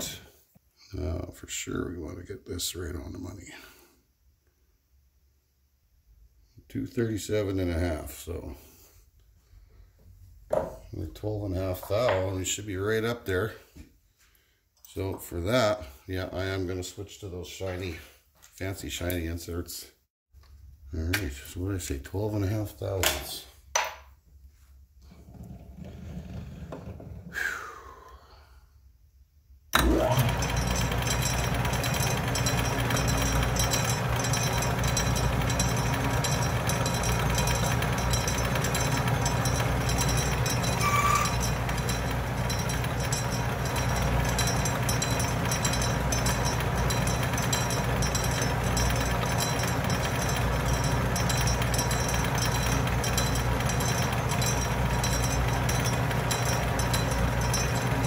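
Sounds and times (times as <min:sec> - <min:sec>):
lathe motor running: 0:29.8 - 0:58.0
brief squeak: 0:40.8 - 0:41.3.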